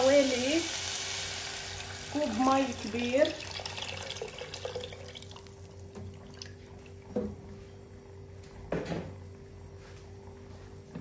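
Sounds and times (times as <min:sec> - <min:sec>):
water pouring into a pot: 0:00.0 - 0:07.0
steady low hum: 0:00.0 - 0:11.0.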